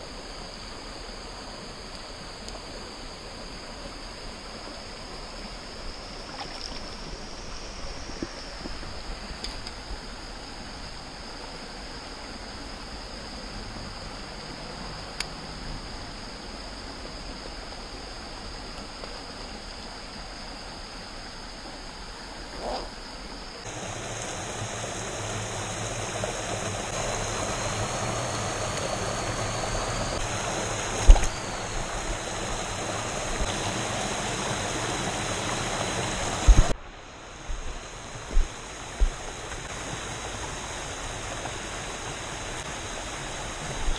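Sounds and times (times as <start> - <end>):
stream running over stones: 0.8 - 43.9.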